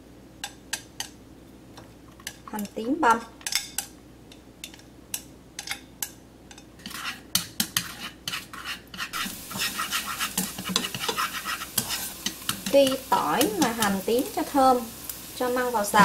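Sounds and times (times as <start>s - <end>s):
spoon and spatula tapping pan: 0.4s - 1.2s, 1.8s - 8.4s, 9.0s - 14.0s
oil sizzling: 0.4s - 16.0s.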